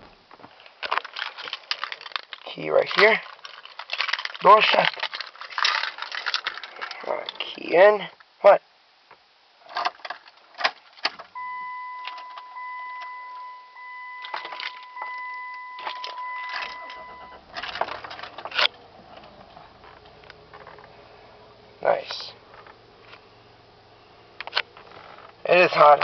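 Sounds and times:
keys jangling in ignition: 0:09.7 - 0:20.8
car engine cranking and starting: 0:10.6 - 0:26.0
car engine idling: 0:11.2 - 0:26.0
electronic warning tone: 0:11.4 - 0:17.5.

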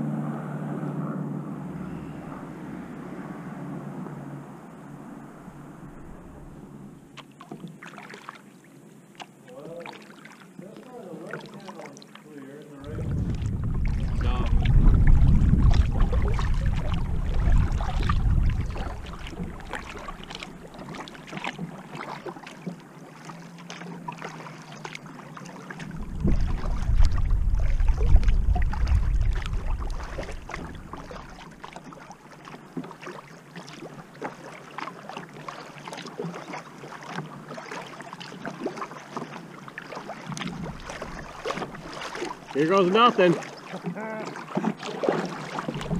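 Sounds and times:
paddle splashing water: 0:04.7 - 0:45.9
wind buffeting microphone: 0:12.8 - 0:21.2, 0:25.8 - 0:31.6, 0:45.6 - 0:45.9.

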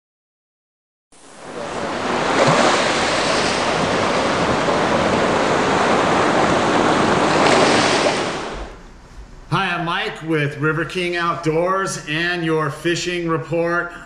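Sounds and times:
rushing water: 0:01.2 - 0:08.8.

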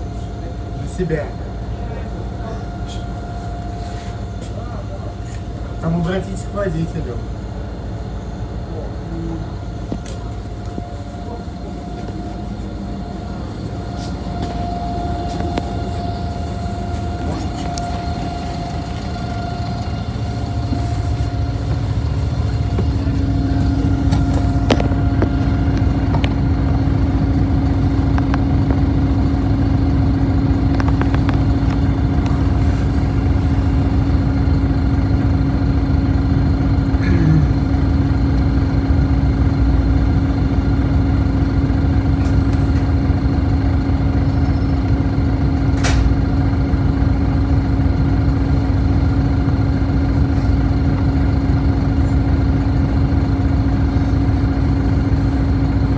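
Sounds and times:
bus engine idling: 0:00.0 - 0:55.9
steady hum: 0:00.0 - 0:55.9.

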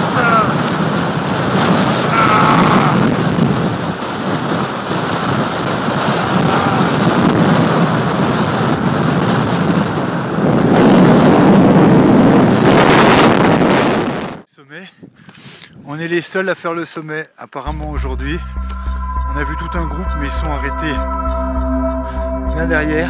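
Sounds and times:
strong wind buffeting microphone: 0:00.0 - 0:14.4.

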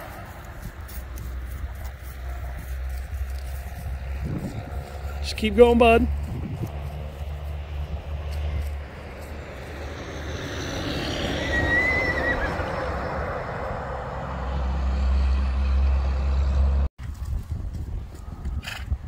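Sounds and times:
low rumble: 0:00.0 - 0:05.4
truck driving past: 0:00.0 - 0:16.9
brief high squeal: 0:11.1 - 0:12.6.

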